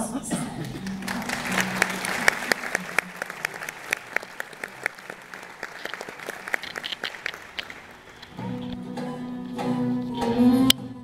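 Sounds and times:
audience applauding: 0:00.5 - 0:08.8
ensemble playing with violin: 0:00.7 - 0:11.0.

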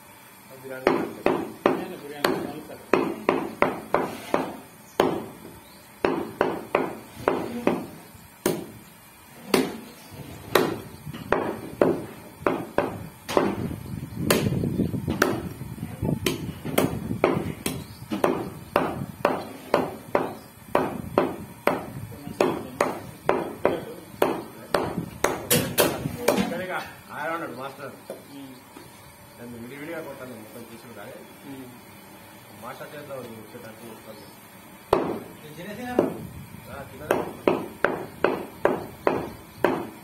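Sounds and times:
cleaver chopping meat and bone: 0:00.8 - 0:08.8, 0:09.5 - 0:15.6, 0:16.2 - 0:26.6, 0:34.9 - 0:35.3, 0:35.9 - 0:36.2, 0:37.0 - 0:40.0.

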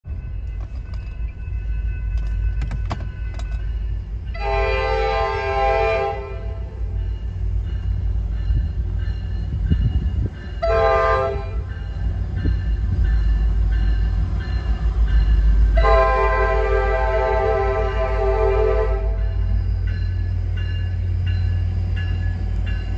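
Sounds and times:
train rumble: 0:00.0 - 0:22.9
train horn blasts: 0:04.3 - 0:07.0, 0:10.6 - 0:11.7, 0:15.7 - 0:19.5.

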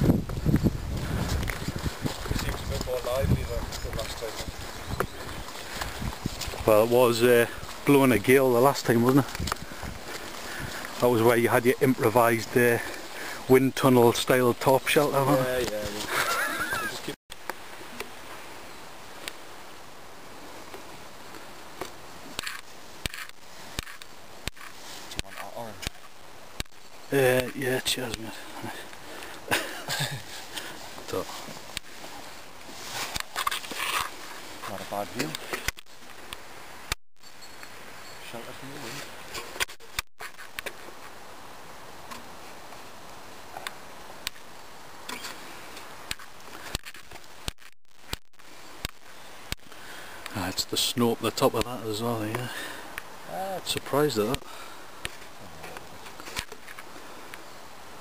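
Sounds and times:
steady hiss: 0:00.0 - 0:36.9, 0:37.6 - 0:58.0
branches cracking and snapping: 0:46.0 - 0:48.2.

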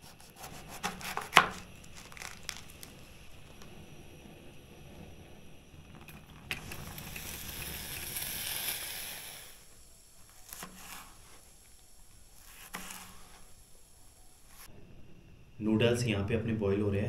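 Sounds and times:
crinkly rustling of vegetables: 0:01.0 - 0:03.1.

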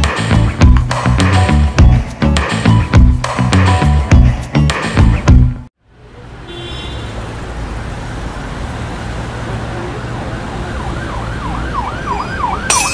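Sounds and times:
road traffic rumble: 0:05.8 - 0:12.9
emergency siren yelping: 0:10.2 - 0:12.9.

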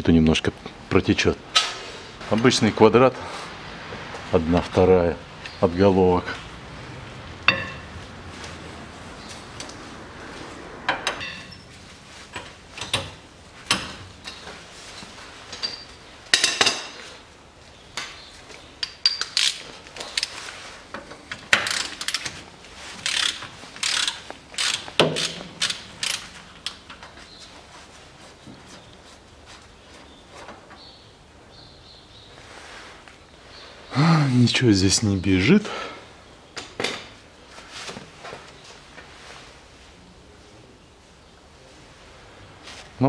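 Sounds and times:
ratchet wrench clicking: 0:21.6 - 0:22.3, 0:23.0 - 0:26.3.

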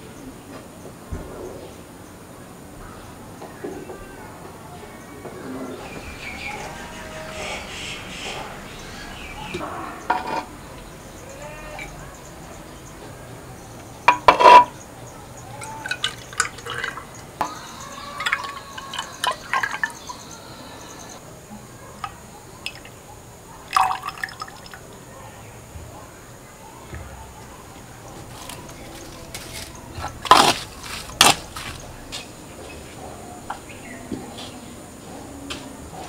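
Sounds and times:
liquid pouring into glass jar: 0:15.6 - 0:20.2, 0:23.7 - 0:24.8.

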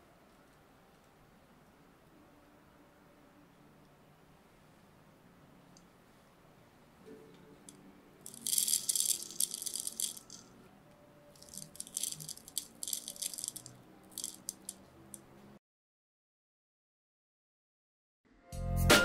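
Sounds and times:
sprinkles rattling into bowl: 0:08.3 - 0:10.5, 0:11.4 - 0:14.8
sprinkles ticking: 0:08.3 - 0:10.5, 0:11.4 - 0:14.8.

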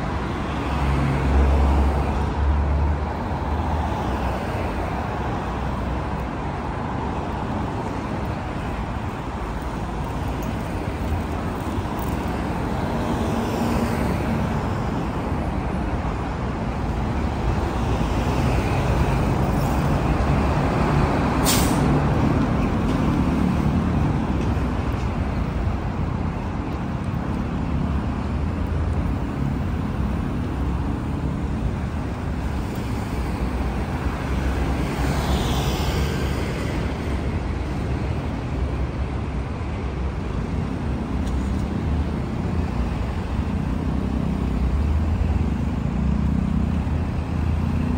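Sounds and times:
traffic rumble: 0:00.0 - 0:47.9
brief sharp hiss: 0:21.4 - 0:22.0.

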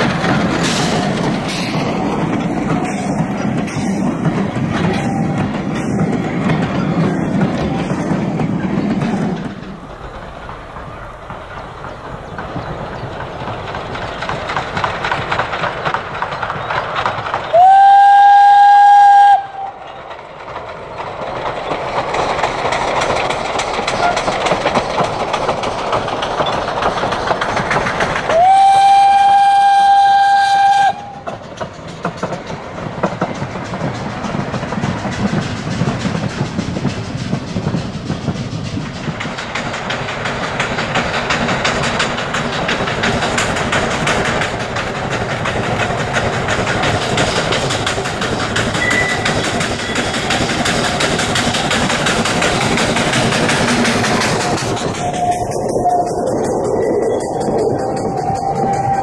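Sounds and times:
train coaches rumbling over rails: 0:00.0 - 0:59.0
steam whistle blasts: 0:17.5 - 0:19.8, 0:28.3 - 0:31.3, 0:58.0 - 0:59.0.

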